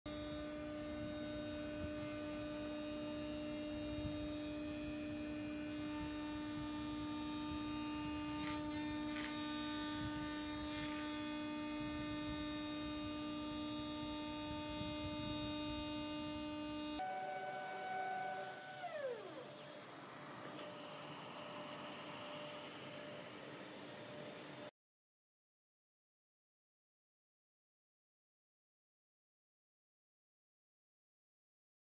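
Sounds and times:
router spindle whining hum: 0.1s - 24.7s.

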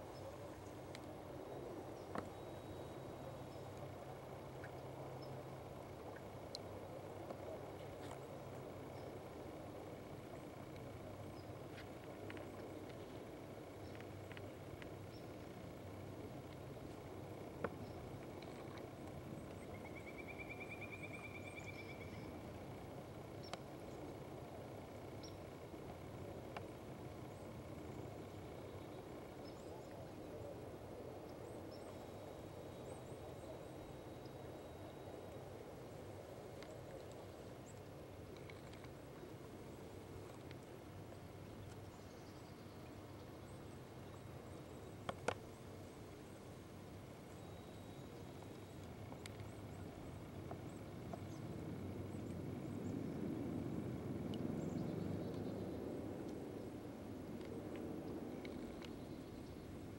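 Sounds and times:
outdoor background hiss: 0.0s - 59.9s
soft ticks: 0.9s - 1.1s, 6.0s - 7.4s, 10.2s - 19.9s, 23.3s - 26.8s, 36.6s - 39.0s, 45.0s - 45.5s, 48.4s - 51.8s.

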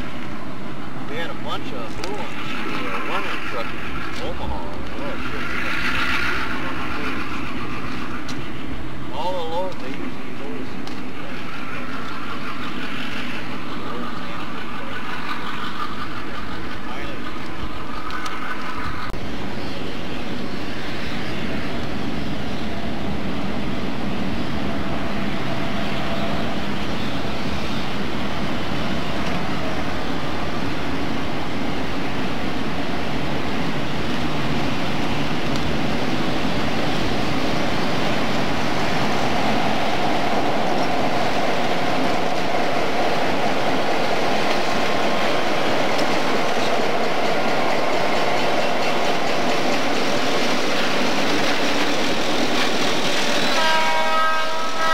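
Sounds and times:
diesel locomotives passing: 0.0s - 54.9s
rail noise: 0.0s - 54.9s.

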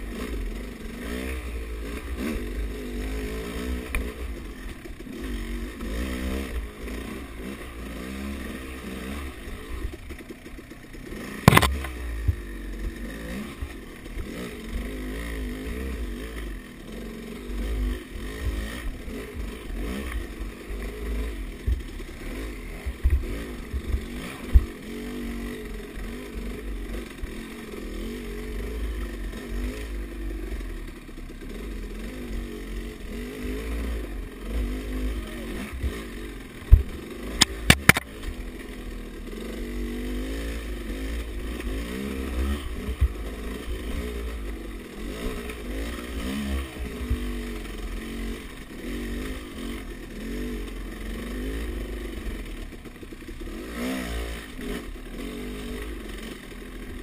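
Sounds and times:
dirt bike engine revving: 0.0s - 57.0s
bike knocking on rough ground: 11.4s - 13.0s, 22.8s - 24.8s, 36.6s - 38.4s.

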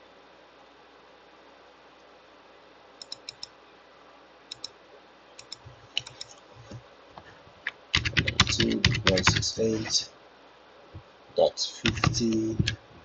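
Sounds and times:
computer mouse clicking: 3.0s - 3.6s, 4.5s - 4.8s, 5.4s - 6.8s, 7.6s - 9.4s, 11.9s - 12.8s.

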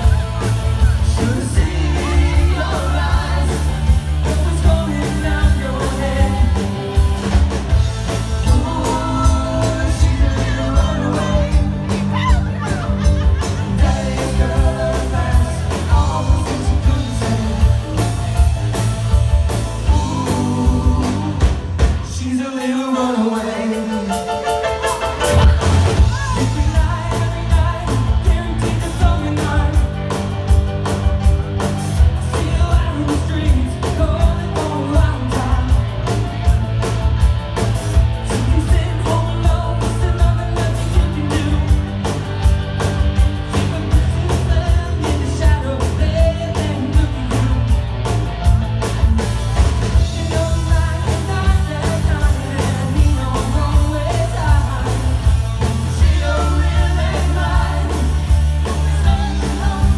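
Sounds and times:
person singing: 0.0s - 7.3s, 8.1s - 18.5s, 19.5s - 30.3s, 38.3s - 42.2s, 49.9s - 59.9s
live rock band playing: 0.0s - 59.9s.

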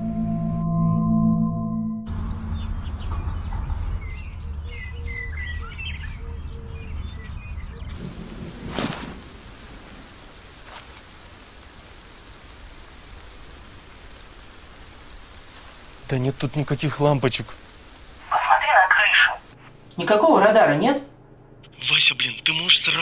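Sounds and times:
small birds chirping: 2.1s - 8.1s
low wind rumble: 2.1s - 19.6s
quiet steady hiss: 7.9s - 20.4s.

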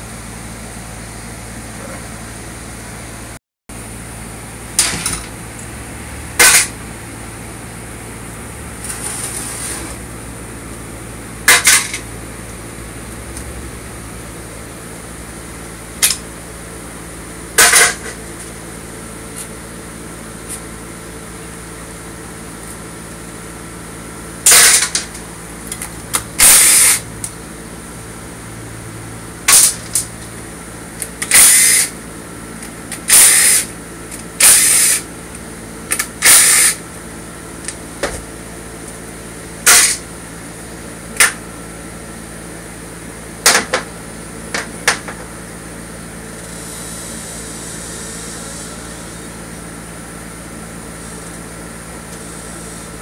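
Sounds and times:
steady room hum: 0.0s - 53.0s
power tool bursts: 24.4s - 25.1s, 26.4s - 27.1s, 29.5s - 30.0s, 31.2s - 32.0s, 33.0s - 33.8s, 34.4s - 35.1s, 35.9s - 36.8s, 39.6s - 40.1s.

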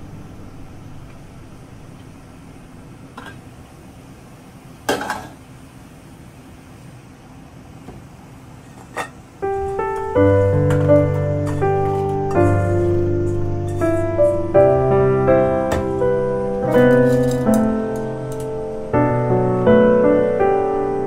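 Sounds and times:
piano music: 0.0s - 3.0s, 9.4s - 21.0s
metal lid clanking: 3.2s - 3.5s, 8.7s - 12.5s, 13.2s - 14.0s, 16.6s - 17.7s.

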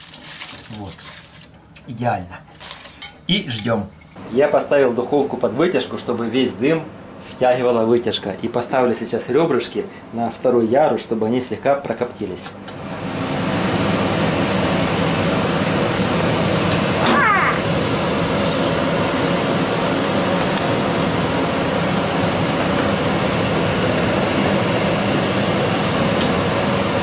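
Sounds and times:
extractor fan rushing: 12.7s - 27.0s.

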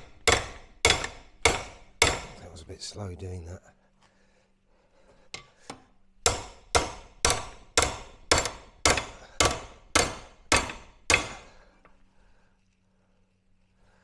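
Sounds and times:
hammer striking metal: 0.0s - 2.4s, 6.2s - 11.5s.

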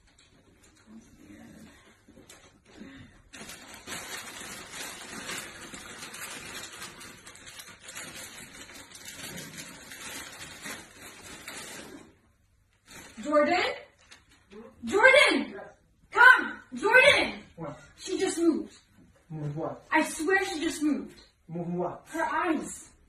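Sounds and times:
wrapping paper crinkling: 2.1s - 14.5s.

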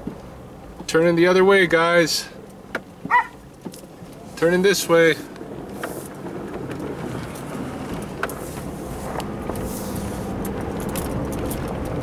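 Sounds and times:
vehicle engine and tyre noise: 0.0s - 12.0s.

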